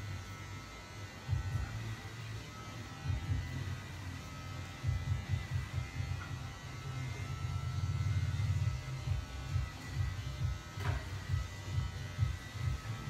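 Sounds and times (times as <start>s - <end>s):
small electric motor buzzing: 0.0s - 13.0s.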